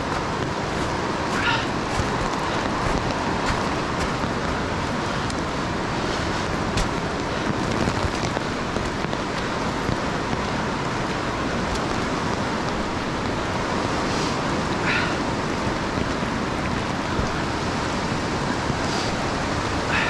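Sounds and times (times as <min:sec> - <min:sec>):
footsteps on rock: 0:00.0 - 0:04.4, 0:06.6 - 0:08.4
river rushing over rapids: 0:00.0 - 0:20.0.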